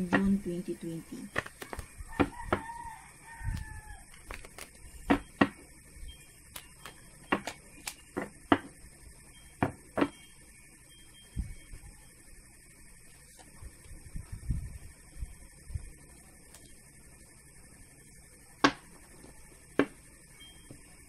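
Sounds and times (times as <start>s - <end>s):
cards being shuffled: 1.3s - 1.9s, 3.6s - 4.8s
rooster crowing: 1.6s - 4.4s.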